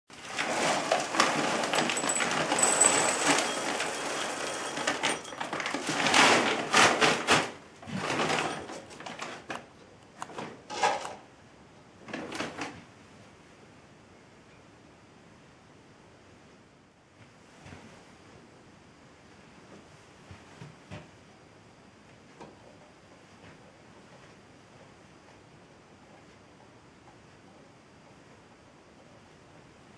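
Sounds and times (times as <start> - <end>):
bag rustling: 0.4 - 6.6.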